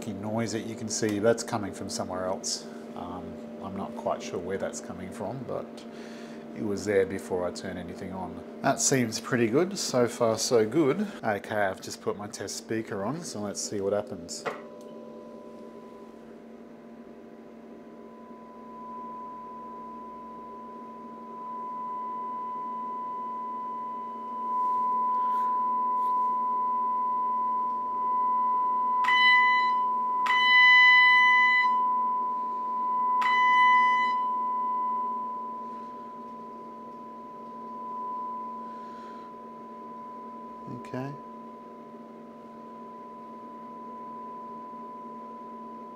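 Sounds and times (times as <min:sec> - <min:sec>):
sine test tone: 0:14.5 - 0:45.9.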